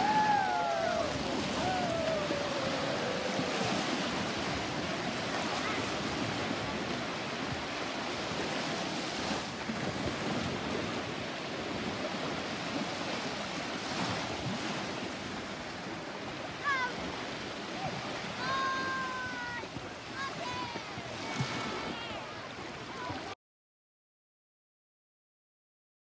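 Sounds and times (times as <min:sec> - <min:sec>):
voice calling out: 0:00.0 - 0:04.0
sea waves washing on shore: 0:00.0 - 0:23.4.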